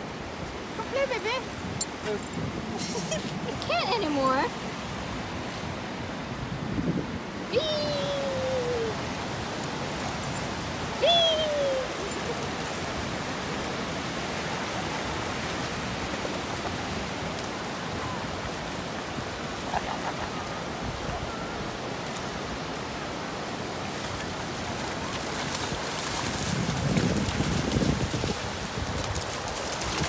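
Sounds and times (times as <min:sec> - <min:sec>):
ocean surf on beach: 0:00.0 - 0:30.0
splashing in shallow water: 0:23.6 - 0:30.0.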